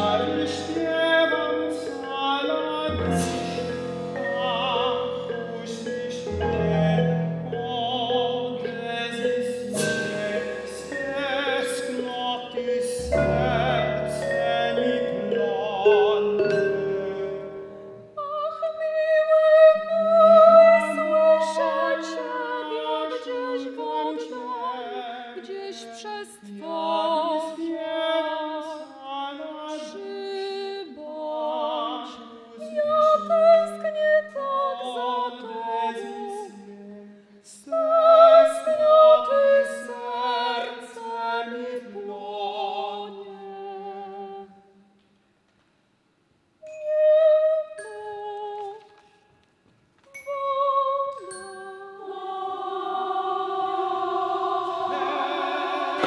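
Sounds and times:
man singing operatic duet: 0.0s - 17.8s, 19.9s - 44.5s
woman singing operatic duet: 0.0s - 44.9s, 46.6s - 49.1s, 50.0s - 56.0s.

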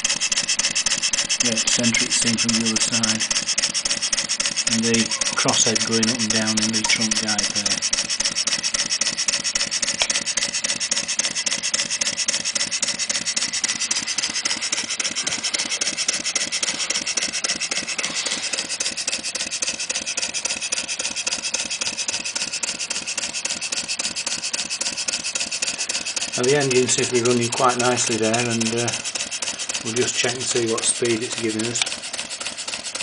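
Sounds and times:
steam engine exhaust beats: 0.0s - 33.0s.

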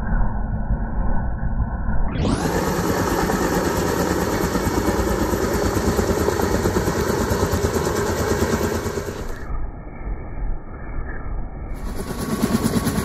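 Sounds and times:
helicopter engine noise: 2.1s - 9.8s, 11.7s - 13.0s
helicopter rotors chopping: 2.2s - 9.5s, 11.8s - 13.0s.

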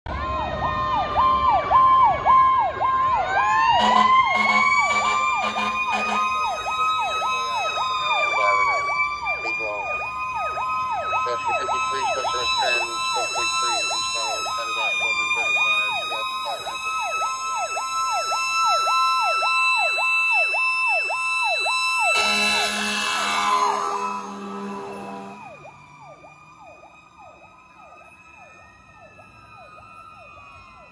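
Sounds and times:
fast-cycling electronic siren: 0.1s - 30.9s
mechanical siren wail: 0.1s - 30.9s
air horn blasts: 3.8s - 6.4s, 22.0s - 25.6s.

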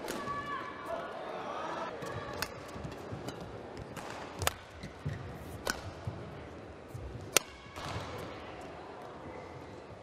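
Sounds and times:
rackets striking shuttlecock: 2.0s - 6.3s, 7.2s - 8.3s.

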